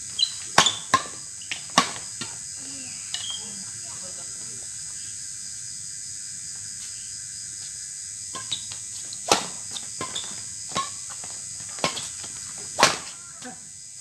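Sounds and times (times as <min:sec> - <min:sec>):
night insects chirring: 0:00.0 - 0:14.0
rackets hitting shuttlecock: 0:00.4 - 0:02.4, 0:08.4 - 0:13.1.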